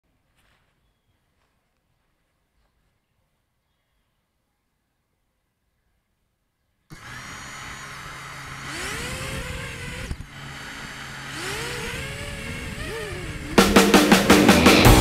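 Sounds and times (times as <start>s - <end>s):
quadcopter motors whirring: 6.9s - 14.9s.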